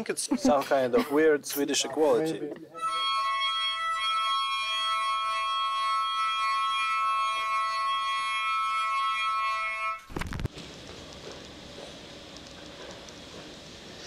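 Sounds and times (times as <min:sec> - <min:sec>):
toy horn long note: 0:02.8 - 0:10.1.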